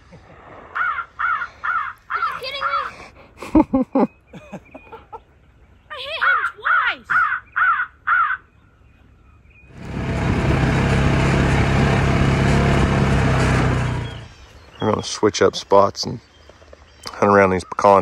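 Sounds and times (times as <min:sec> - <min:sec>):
crows cawing: 0:00.8 - 0:02.9, 0:06.2 - 0:08.5
utility vehicle engine: 0:09.7 - 0:15.1.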